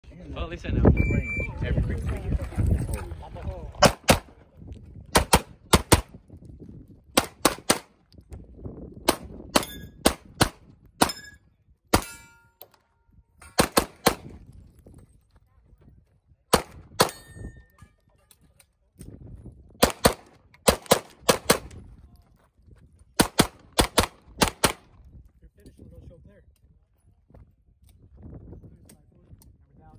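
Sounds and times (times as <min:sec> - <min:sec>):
pistol shots: 0:03.8 - 0:04.3, 0:05.1 - 0:06.1, 0:07.2 - 0:07.9, 0:09.1 - 0:11.2, 0:13.5 - 0:14.3, 0:16.5 - 0:17.3, 0:19.8 - 0:21.8, 0:23.2 - 0:24.9.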